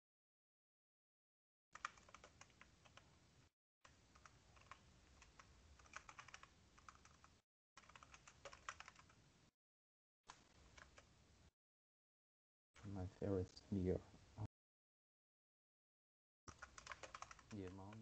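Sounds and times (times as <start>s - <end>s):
typing on computer keyboard: 1.8s - 3.0s, 4.1s - 9.2s, 10.7s - 11.1s, 16.5s - 18.0s.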